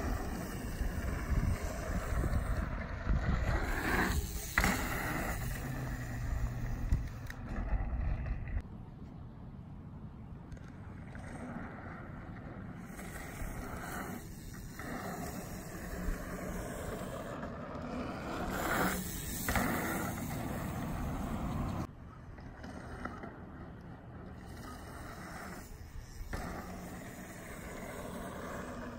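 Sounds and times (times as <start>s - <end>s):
bike tyres rolling over dirt: 0.0s - 8.6s, 10.5s - 28.9s
wind on microphone: 0.0s - 8.6s.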